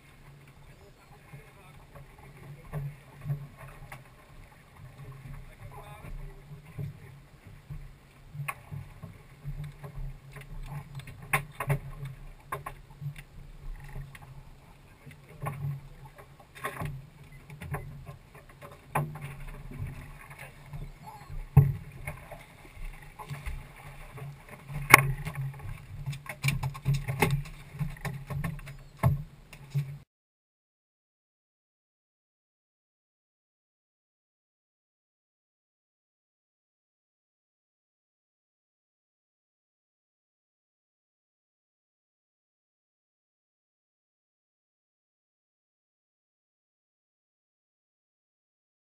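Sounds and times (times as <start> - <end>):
knocks and clatter on boat hull: 5.1 - 14.3, 15.1 - 30.0.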